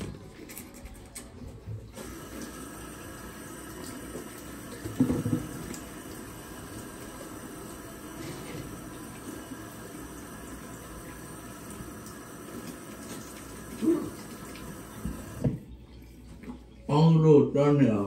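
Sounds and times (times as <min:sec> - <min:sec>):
tap water running into sink: 0:01.9 - 0:15.7.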